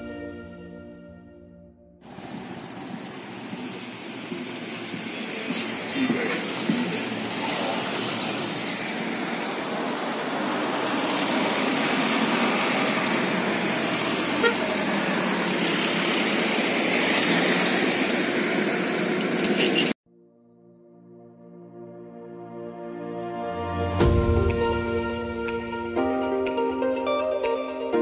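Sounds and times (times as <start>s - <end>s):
road traffic passing: 2.0s - 20.0s.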